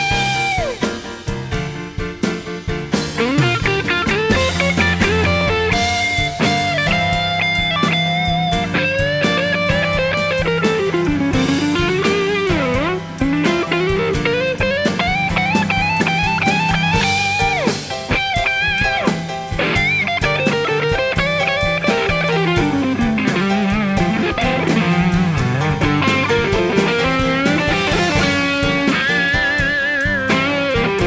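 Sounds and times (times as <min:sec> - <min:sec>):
electric guitar solo: 0:00.0 - 0:01.1, 0:03.0 - 0:31.0
band backing with drums: 0:00.0 - 0:31.0.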